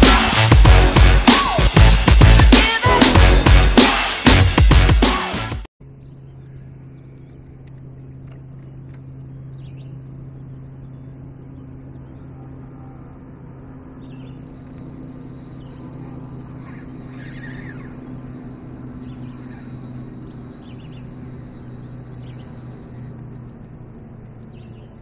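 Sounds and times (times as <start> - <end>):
electronic music: 0.0 - 5.7
insects buzzing: 5.0 - 25.0
steady low hum: 5.8 - 25.0
faint bird chirps: 9.1 - 25.0.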